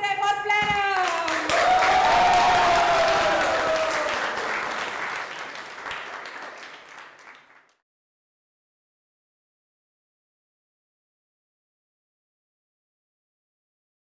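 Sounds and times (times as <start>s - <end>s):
crowd clapping and cheering: 0.8s - 7.8s
long voiced cheer falling in pitch: 1.0s - 5.4s.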